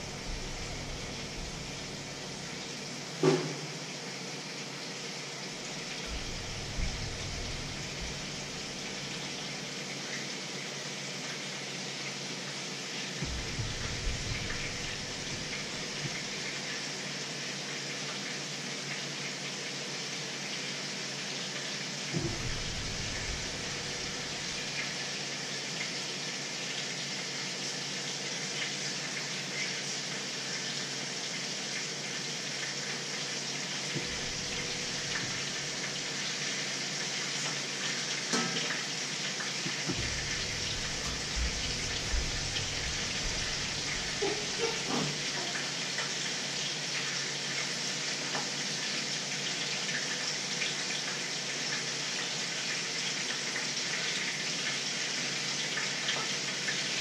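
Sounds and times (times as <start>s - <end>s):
steady hiss: 0.0s - 2.8s, 5.8s - 9.3s, 13.2s - 16.5s, 34.0s - 36.1s, 39.9s - 44.6s.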